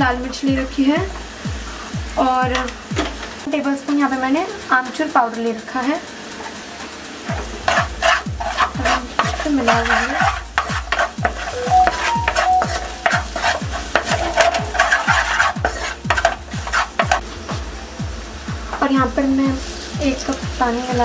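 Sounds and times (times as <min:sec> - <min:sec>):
background music with low beat: 0:00.0 - 0:03.5, 0:04.8 - 0:21.0
onions sizzling: 0:00.0 - 0:21.0
spatula scraping frying pan: 0:06.3 - 0:17.2.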